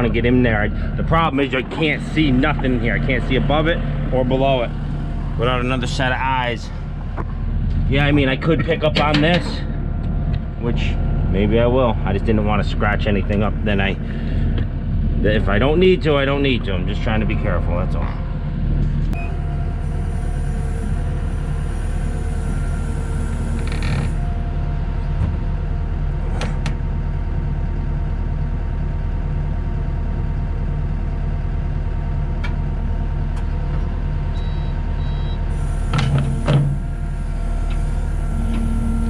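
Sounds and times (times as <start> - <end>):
diesel engine under load: 0.0 - 39.0
faint hydraulic whine: 18.0 - 26.7, 33.3 - 39.0.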